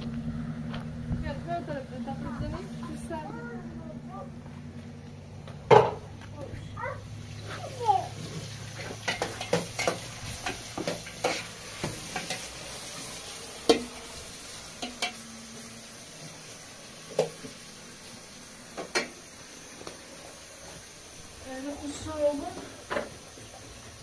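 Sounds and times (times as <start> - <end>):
gas burner hiss: 5.4 - 24.0.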